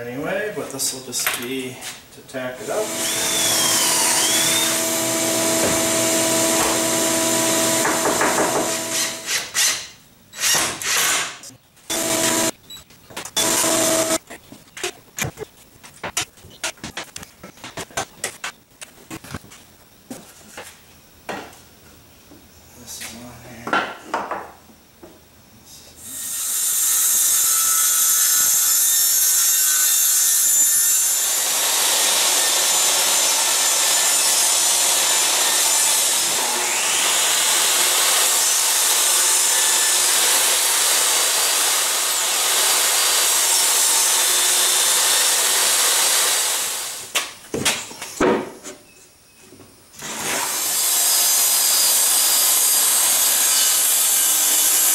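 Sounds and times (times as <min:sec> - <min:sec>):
table saw cutting plywood: 0:02.6 - 0:12.6, 0:13.4 - 0:14.2, 0:26.1 - 0:47.1, 0:50.0 - 0:54.9
wood knocking: 0:05.6 - 0:05.9, 0:07.8 - 0:08.8.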